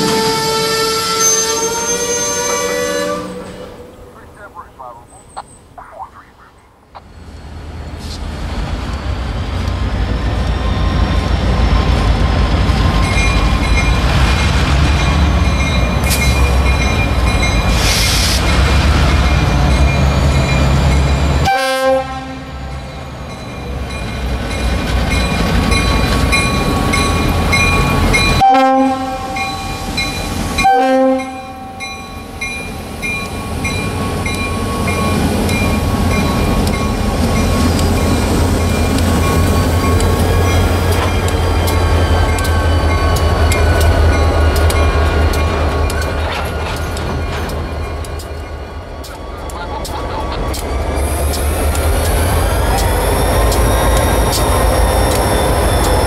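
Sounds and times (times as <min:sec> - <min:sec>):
train air horn: 0:00.0 - 0:03.8, 0:21.4 - 0:22.6, 0:28.4 - 0:29.4, 0:30.6 - 0:31.8
locomotive engines rumbling: 0:00.0 - 0:56.0
crossing bell dinging: 0:12.9 - 0:17.8, 0:22.6 - 0:50.8.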